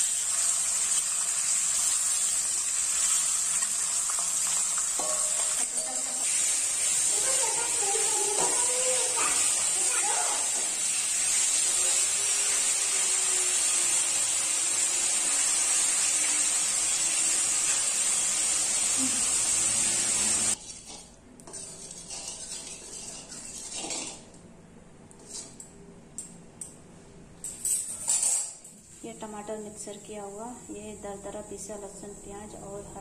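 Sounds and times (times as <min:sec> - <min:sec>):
fish sizzling in hot oil: 0:00.0 - 0:20.6.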